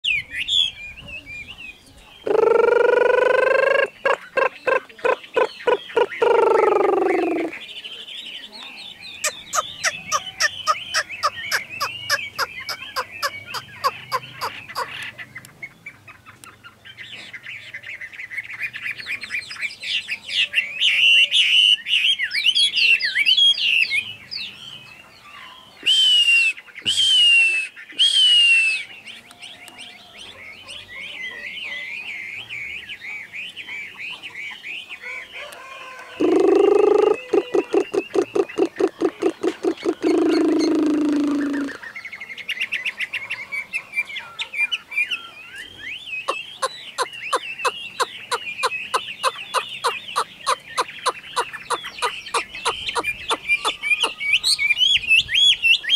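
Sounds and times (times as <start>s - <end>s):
lower pulsing bird call: 0.0s - 7.7s, 8.8s - 15.2s, 25.2s - 34.2s, 34.8s - 41.9s, 42.6s - 55.9s
bird singing: 0.0s - 55.9s.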